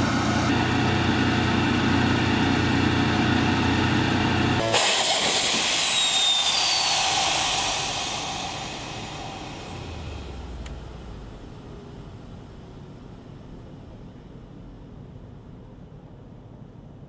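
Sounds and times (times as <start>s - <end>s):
drone piston engine and propeller: 0.0s - 12.8s
loud rushing sound: 4.6s - 11.4s.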